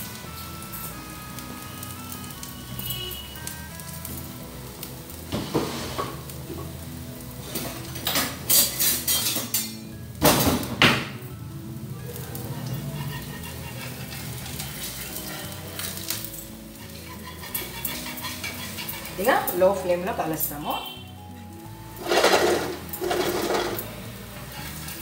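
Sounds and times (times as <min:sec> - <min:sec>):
background music: 0:00.0 - 0:25.0
spatula clattering on metal utensils: 0:07.5 - 0:10.8, 0:12.2 - 0:20.8, 0:22.0 - 0:25.0.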